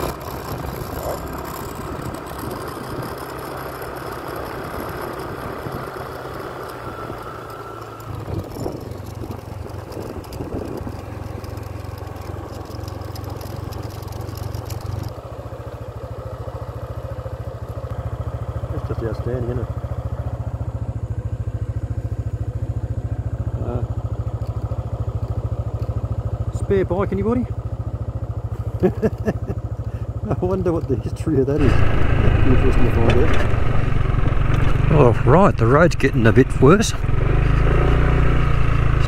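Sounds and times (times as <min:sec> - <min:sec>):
road and wind rushing: 0:00.0 - 0:12.4, 0:31.6 - 0:39.0
motorcycle engine running: 0:00.0 - 0:39.0.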